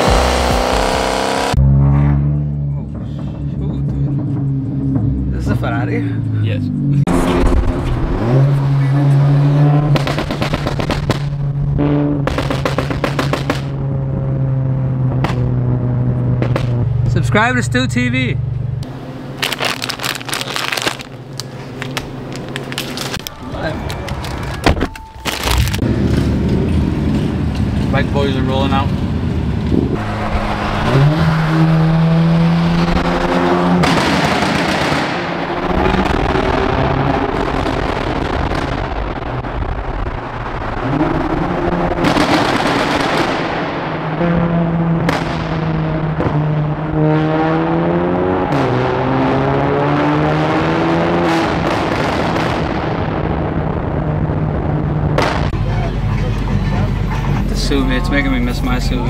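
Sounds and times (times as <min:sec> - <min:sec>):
car engine droning: 0:00.0 - 0:59.0
exhaust pops and crackles: 0:09.8 - 0:13.8, 0:15.1 - 0:15.6, 0:16.3 - 0:17.6, 0:19.4 - 0:30.0, 0:33.8 - 0:46.8, 0:51.4 - 0:56.5.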